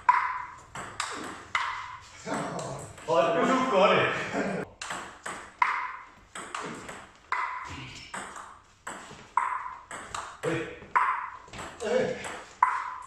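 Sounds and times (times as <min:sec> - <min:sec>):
table tennis ball clicks: 0:00.0 - 0:02.0.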